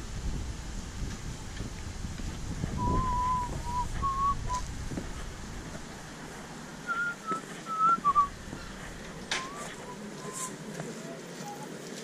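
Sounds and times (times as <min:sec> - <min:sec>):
person whistling a tune: 0:02.8 - 0:04.6, 0:06.9 - 0:08.3.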